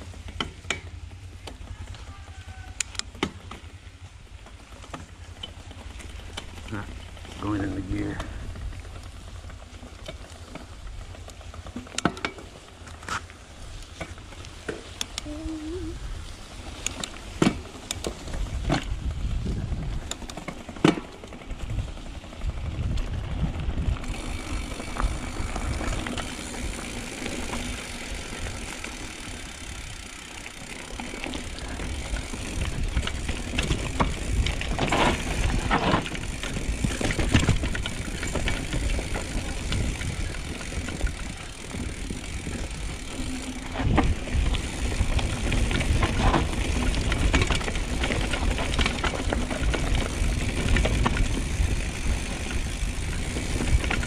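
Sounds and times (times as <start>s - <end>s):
bike knocking and rattling: 0.0s - 54.0s
bike tyres rolling on dirt: 0.0s - 54.0s
wind rumbling on microphone: 15.2s - 20.4s, 21.4s - 30.2s, 30.9s - 54.0s.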